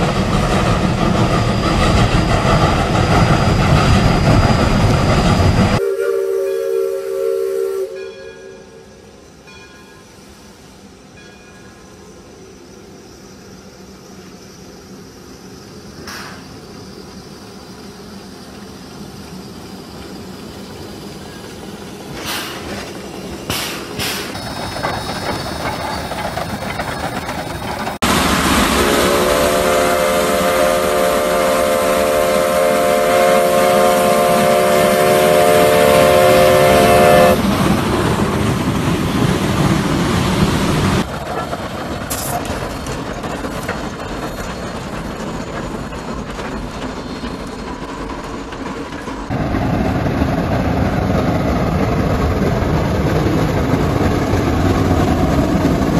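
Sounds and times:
steam locomotive running: 0.0 - 55.9
steam whistle chord: 5.8 - 8.9, 28.6 - 37.4.

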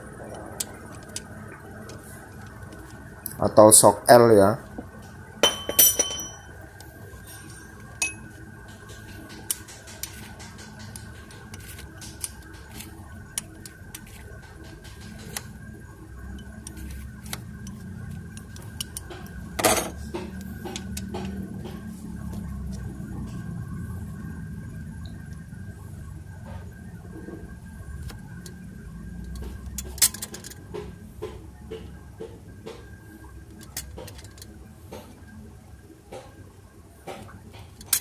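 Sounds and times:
metal clank: 5.4 - 6.4.

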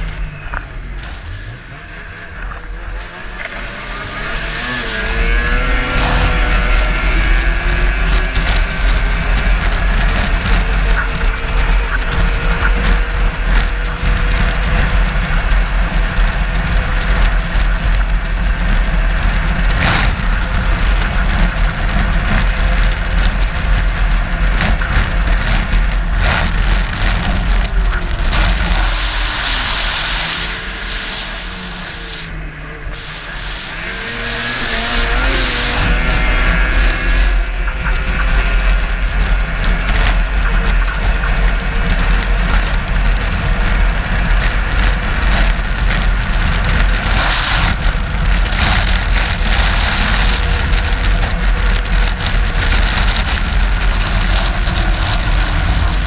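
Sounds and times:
race car engine running hard: 0.0 - 56.0.

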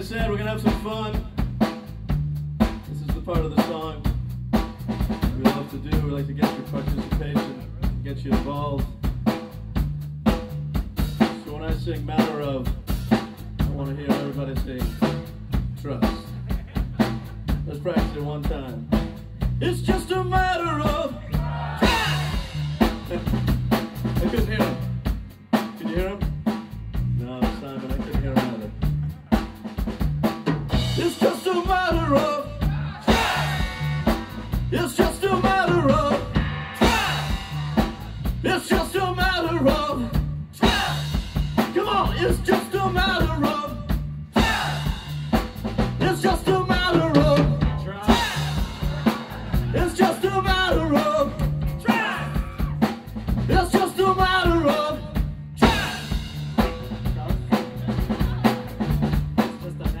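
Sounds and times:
drum kit beat: 0.0 - 60.0
pulsing bass line: 14.7 - 25.3, 28.1 - 60.0.

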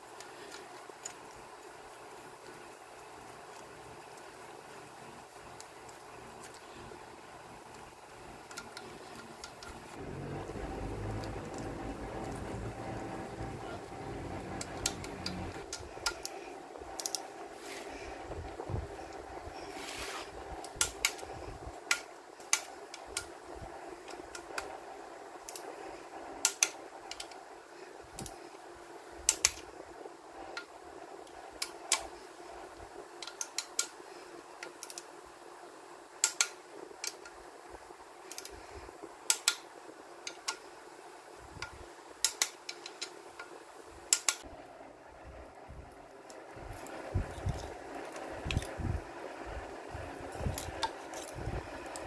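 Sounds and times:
steady low hum: 0.0 - 33.2, 42.9 - 52.0
ratchet clicking: 44.1 - 44.4.

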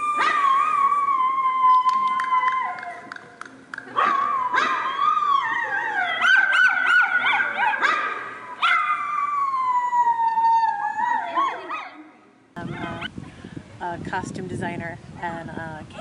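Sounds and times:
dog howling: 0.0 - 3.1, 4.0 - 7.7, 8.6 - 12.0.

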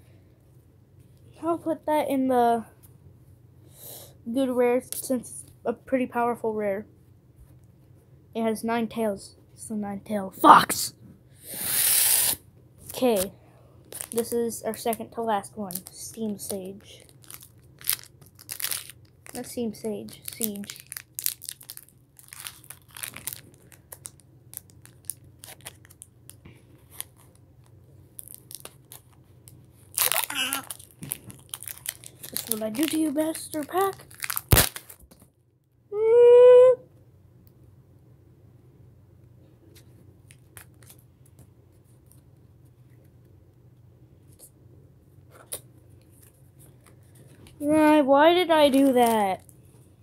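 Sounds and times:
foil pack crinkling and tearing: 11.7 - 13.3, 13.9 - 27.4, 28.2 - 35.2, 40.3 - 41.0.

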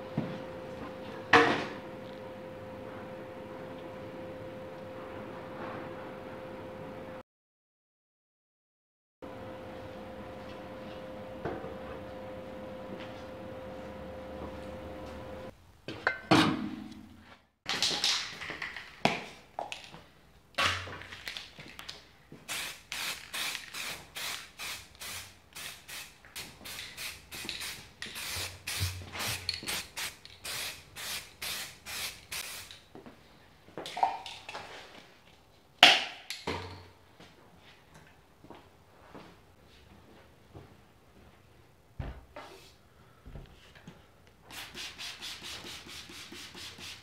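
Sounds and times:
spray can ball rattling: 22.5 - 32.8.

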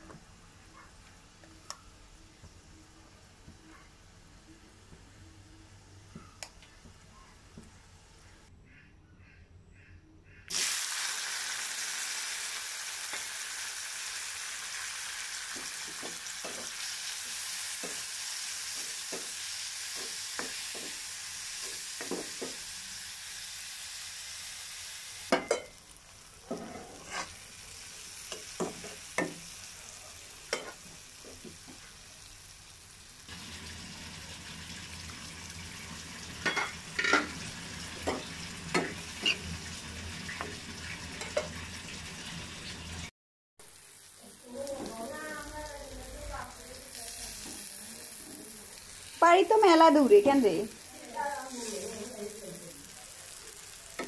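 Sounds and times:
onions sizzling in hot oil: 10.5 - 54.0
spatula scraping pan: 26.4 - 27.4.

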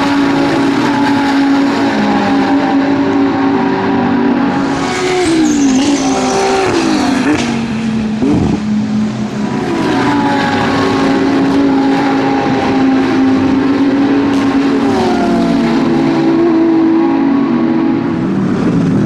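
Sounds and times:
race car engines: 0.0 - 19.0.

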